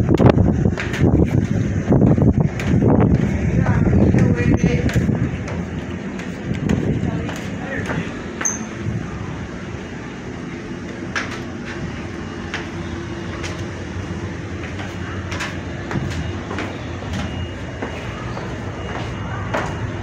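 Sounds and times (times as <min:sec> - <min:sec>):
footsteps going down stairs: 0:00.0 - 0:20.0
steady low rumble: 0:00.0 - 0:20.0.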